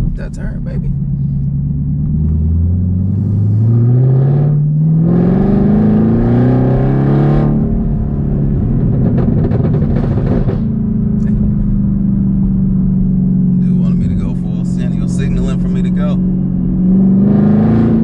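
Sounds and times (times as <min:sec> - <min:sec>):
car engine accelerating: 0:00.0 - 0:18.0
exhaust crackling pops: 0:08.6 - 0:11.8.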